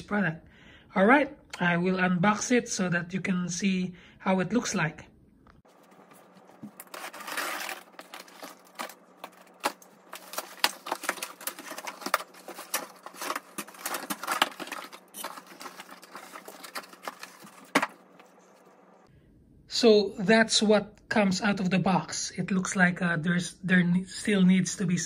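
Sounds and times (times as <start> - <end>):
cardboard flaps rustling and scraping: 5.7 - 18.7.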